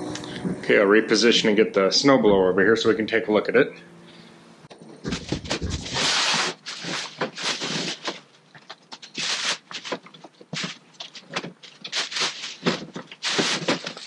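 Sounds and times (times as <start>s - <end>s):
plastic wrapping crinkling: 5.1s - 14.0s.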